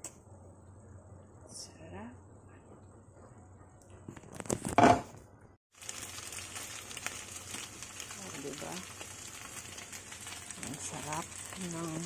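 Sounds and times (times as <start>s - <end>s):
dumplings sizzling in pan: 5.7s - 12.0s.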